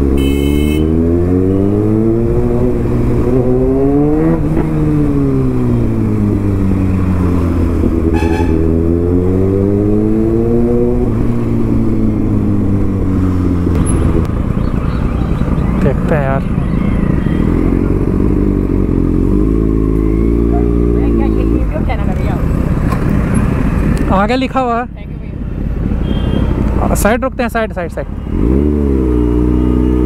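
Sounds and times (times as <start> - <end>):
motorcycle engine accelerating: 0.0 - 24.0, 28.1 - 30.0
short horn beep: 8.1 - 8.7, 26.0 - 26.5.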